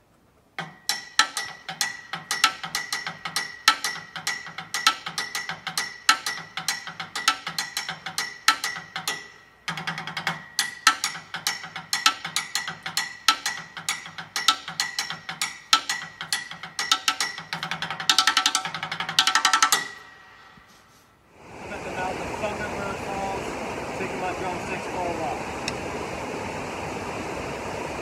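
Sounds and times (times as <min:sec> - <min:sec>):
steady ringing tone: 0:00.6 - 0:20.3
drumsticks striking surfaces: 0:00.6 - 0:20.9.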